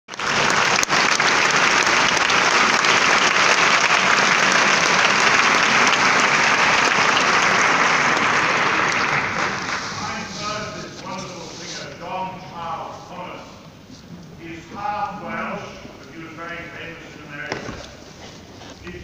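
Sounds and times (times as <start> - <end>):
audience applauding: 0.1 - 10.7.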